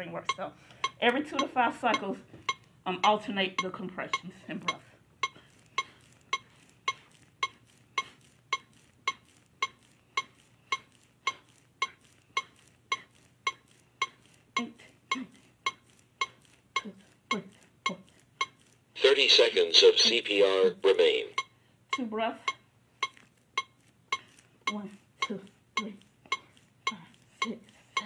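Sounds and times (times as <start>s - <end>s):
metronome beeping: 0.0s - 27.6s.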